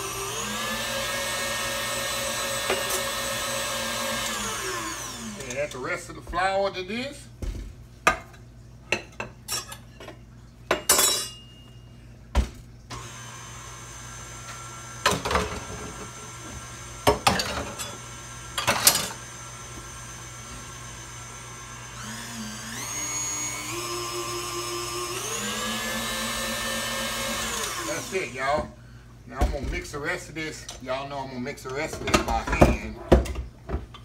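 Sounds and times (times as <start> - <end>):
glass bowl clattering: 10.7 - 11.7.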